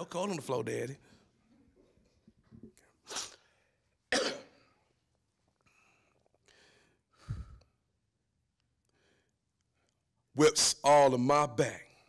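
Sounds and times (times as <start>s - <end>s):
man's cough-like exhalations: 4.1s - 4.7s
faint breaths: 5.6s - 7.8s.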